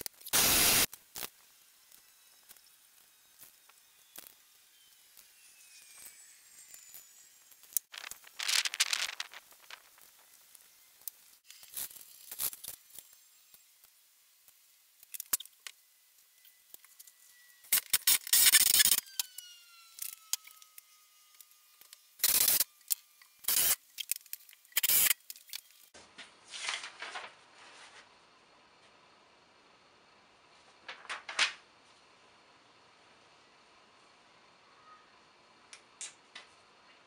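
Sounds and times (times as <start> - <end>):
aerosol spray can hissing: 0.3 - 0.9, 24.8 - 25.2.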